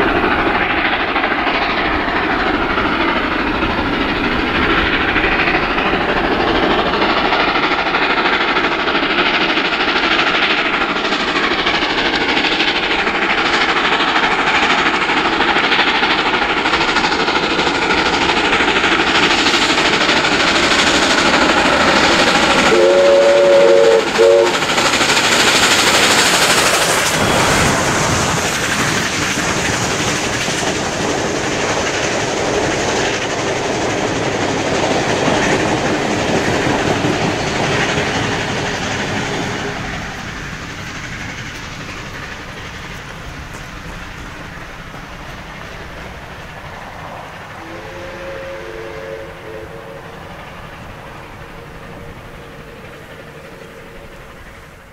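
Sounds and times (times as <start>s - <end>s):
steam locomotive passing: 0.0s - 54.9s
steam whistle chord: 22.7s - 24.6s, 47.6s - 50.2s.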